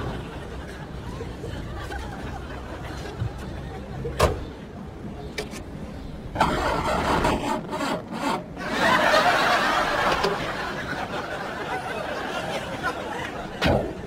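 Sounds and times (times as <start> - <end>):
starter motor cranking engine: 6.4 - 8.6.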